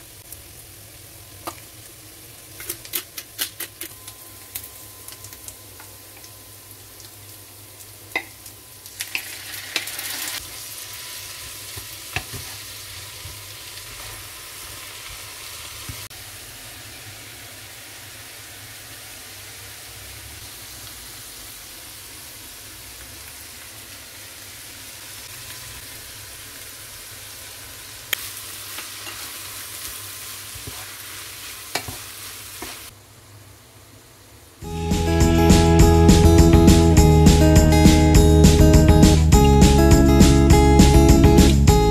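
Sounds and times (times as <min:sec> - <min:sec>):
food sizzling in a frying pan: 0:00.0 - 0:33.0.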